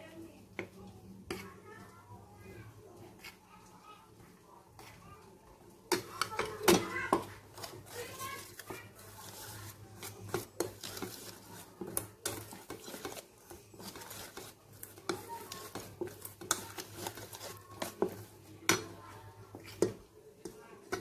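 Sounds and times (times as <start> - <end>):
whisk clinking in metal bowl: 6.1 - 18.9.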